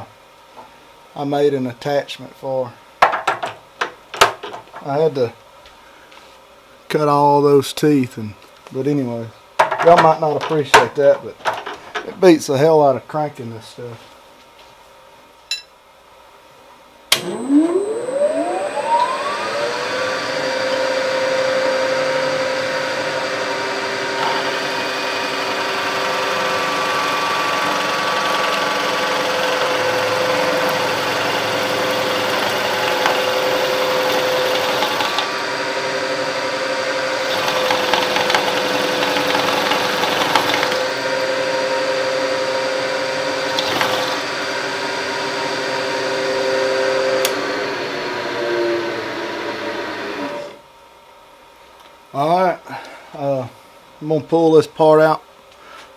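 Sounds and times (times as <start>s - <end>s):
milling machine spindle whine: 17.2s - 50.6s
drill bit boring aluminum: 22.2s - 45.6s.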